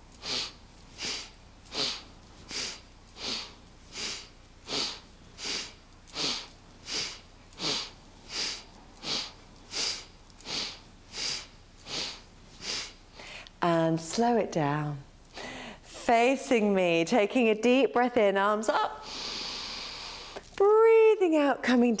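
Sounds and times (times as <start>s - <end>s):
woman breathing sharply through nose: 0.1s - 13.5s, 15.3s - 15.9s, 19.0s - 20.4s.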